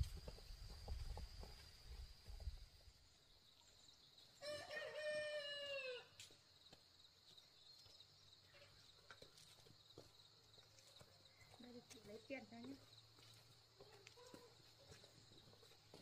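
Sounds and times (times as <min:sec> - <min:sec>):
rooster crowing: 0:04.4 - 0:06.2.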